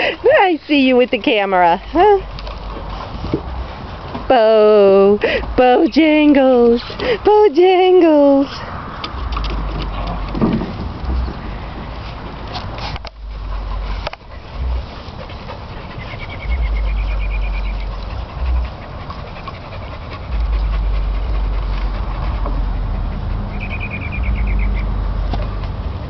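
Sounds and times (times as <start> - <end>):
dogs panting: 0.0 - 26.0
low rumble: 8.6 - 26.0.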